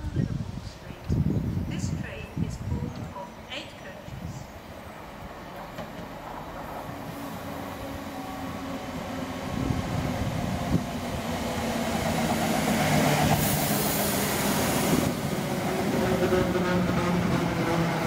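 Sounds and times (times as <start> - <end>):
electric train running past: 4.5 - 18.0
high hiss of carriages: 12.8 - 15.3.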